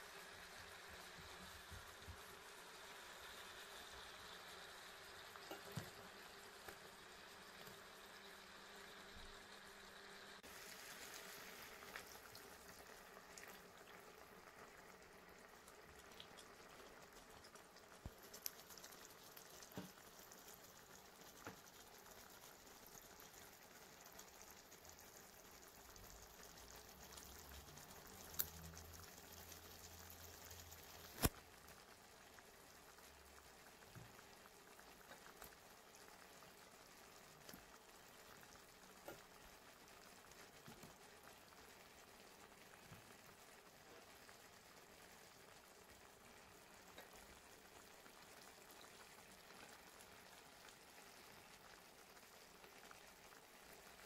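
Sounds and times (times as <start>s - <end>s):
sauce simmering in a pan: 0.0s - 54.0s
light ticks: 28.3s - 28.6s.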